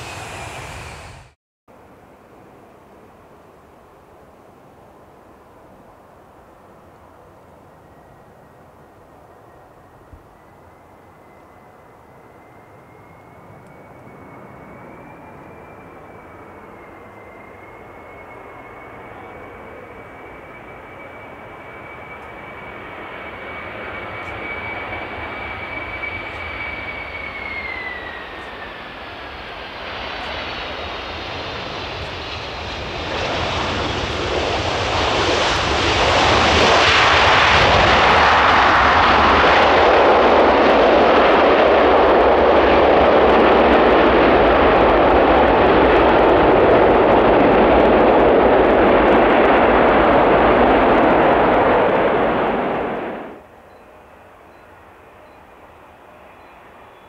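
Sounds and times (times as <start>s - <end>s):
jet engines whining: 0.0s - 1.4s, 7.9s - 57.0s
reverse thrust roar: 0.0s - 1.4s, 37.4s - 53.4s.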